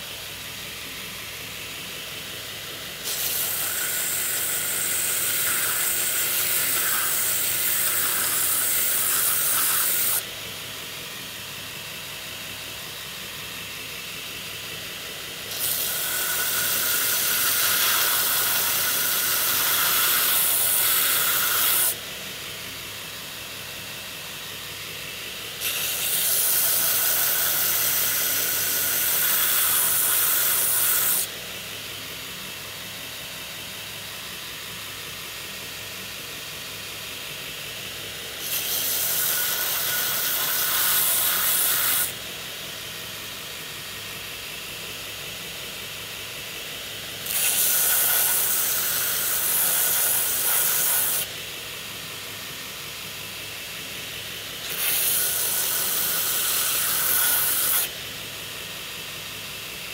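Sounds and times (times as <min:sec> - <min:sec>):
grinding hiss: 0:00.0 - 0:59.9
belt grinder running: 0:03.0 - 0:10.2, 0:15.4 - 0:22.0, 0:25.6 - 0:31.3, 0:38.3 - 0:42.2, 0:47.2 - 0:51.3, 0:54.6 - 0:58.0.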